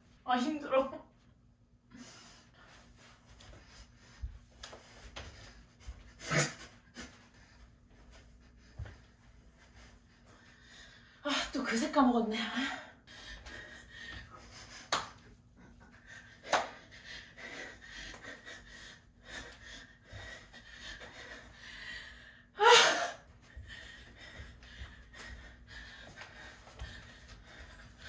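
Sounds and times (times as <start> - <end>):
woman breathing hard and gasping: 12.5 - 15.0, 15.6 - 28.0.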